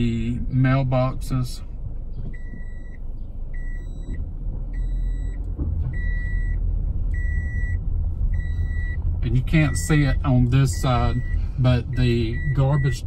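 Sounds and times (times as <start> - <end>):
low rumble of car rolling: 0.0 - 13.0
seatbelt warning chime beeping: 2.3 - 3.0, 3.6 - 4.2, 4.8 - 5.4, 7.2 - 7.8, 8.4 - 13.0.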